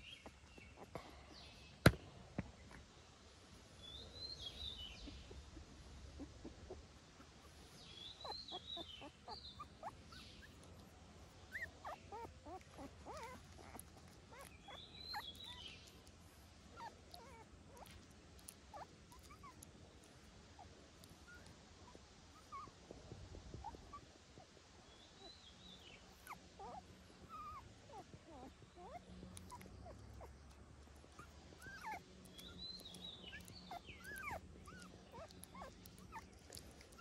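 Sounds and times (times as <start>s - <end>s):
high chirping animal calls: 7.8s - 10.6s.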